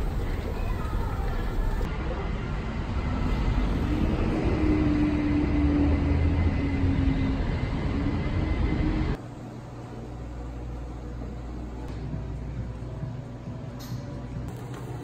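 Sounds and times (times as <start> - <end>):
traffic rush: 0.0 - 9.2
vehicle engine drone: 0.0 - 9.2
low indoor hum: 5.4 - 15.0.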